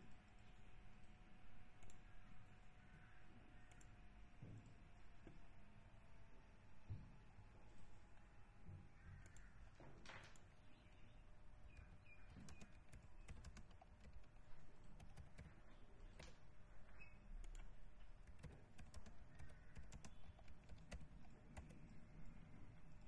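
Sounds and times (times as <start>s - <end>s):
keystrokes on computer keyboard: 1.7s - 2.1s, 9.2s - 23.0s.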